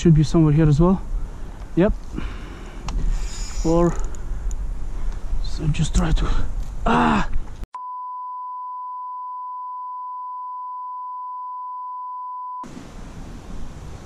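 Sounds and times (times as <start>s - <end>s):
outdoor background noise: 0.0s - 7.7s, 12.6s - 14.0s.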